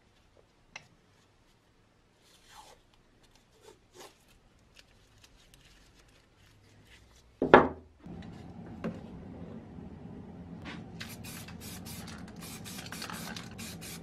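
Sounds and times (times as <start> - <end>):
masking tape rustling and ripping: 2.2 - 7.4, 11.0 - 14.0.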